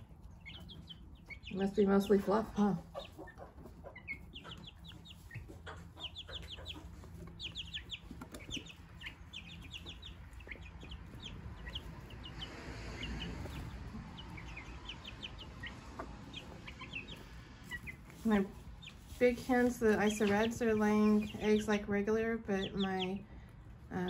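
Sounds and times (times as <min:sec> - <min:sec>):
chicks peeping: 0:00.0 - 0:24.0
rustling: 0:16.4 - 0:21.4.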